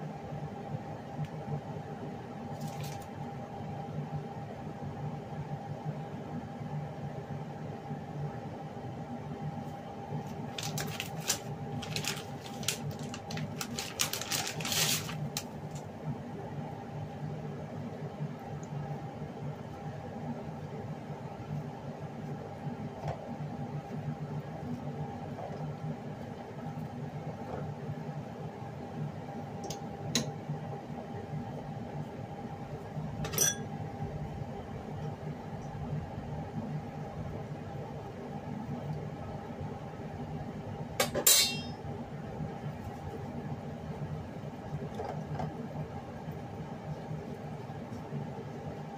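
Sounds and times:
steady low hum: 0.0s - 48.9s
plastic packaging crinkling: 2.5s - 3.1s, 10.4s - 15.8s.

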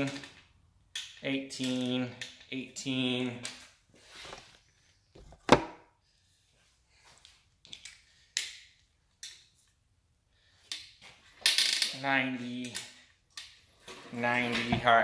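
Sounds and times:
man talking: 1.2s - 3.5s, 11.9s - 12.9s, 14.1s - 15.0s.

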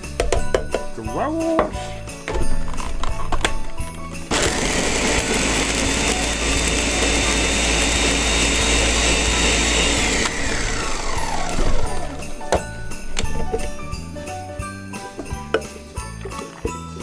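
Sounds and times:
blender motor whine: 4.3s - 12.4s.

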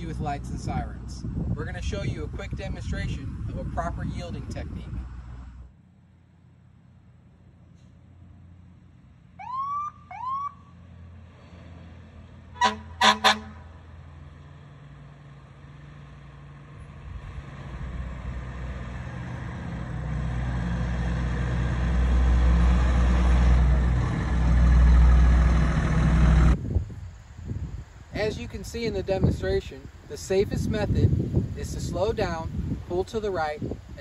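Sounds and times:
fire engine rumble: 0.0s - 34.0s
fire engine siren whoops: 9.4s - 10.9s
horn blasts: 12.5s - 13.8s.

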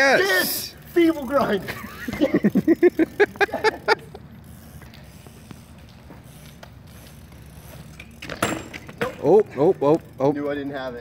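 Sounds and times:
excited laughter: 1.6s - 4.2s.

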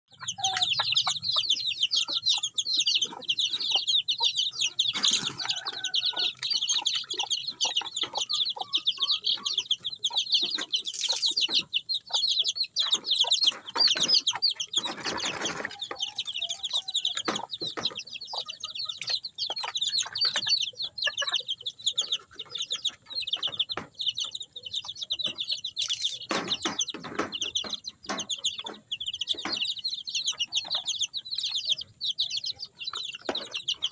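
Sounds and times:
chicks peeping: 0.1s - 33.9s
knocks: 26.2s - 29.8s.

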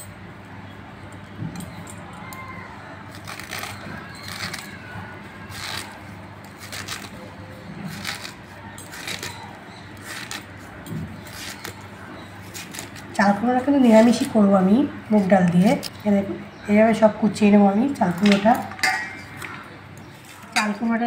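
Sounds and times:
gourd being sliced on blade: 5.4s - 13.2s.

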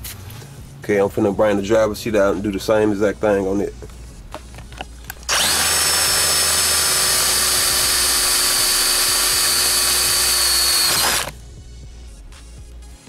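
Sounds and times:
electric power drill running: 5.3s - 11.4s.

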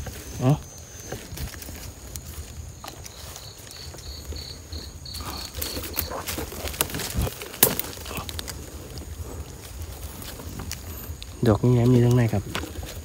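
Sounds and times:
insect pulsed high chirp: 0.0s - 6.8s
rustling: 0.0s - 13.0s.

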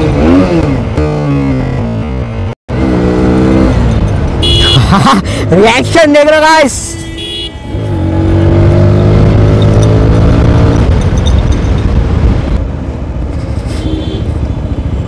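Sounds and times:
motorcycle engine revving: 0.0s - 4.8s, 7.7s - 12.1s.

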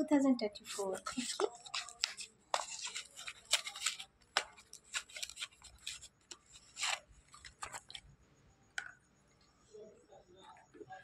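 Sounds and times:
pencils scraping in cardboard box: 0.6s - 8.0s.

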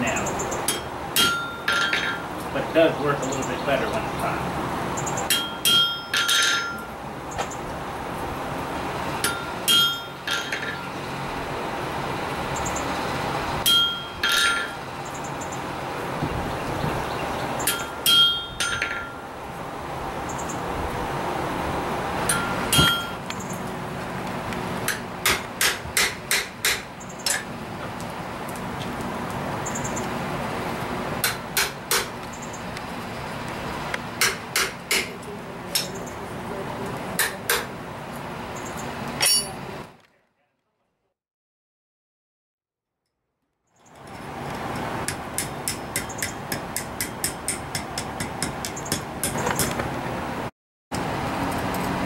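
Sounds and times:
hammer striking chisel on steel: 0.7s - 2.2s, 5.3s - 6.9s, 9.2s - 10.8s, 13.6s - 14.8s, 17.7s - 19.2s, 22.3s - 23.2s, 24.9s - 27.5s, 31.2s - 32.1s, 34.2s - 35.9s, 37.2s - 37.7s, 39.2s - 39.6s, 45.0s - 49.8s.

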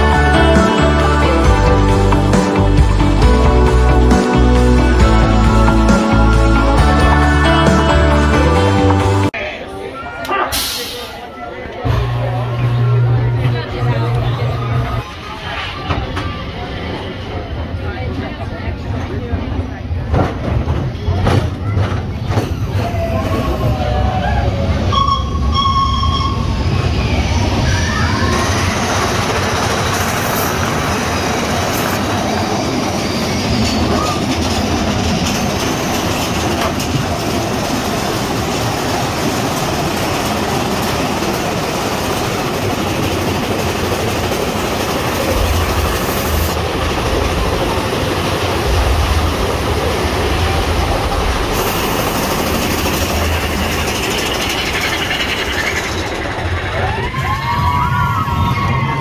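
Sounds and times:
coaster wheels clattering and rumbling: 11.7s - 59.0s
wheels squealing: 21.0s - 48.0s, 50.1s - 59.0s.

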